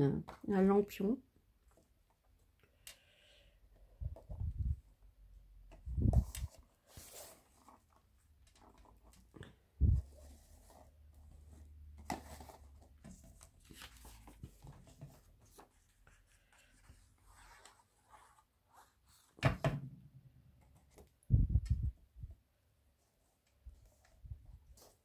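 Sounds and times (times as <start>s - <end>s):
handling of card box: 6.1s - 16.0s.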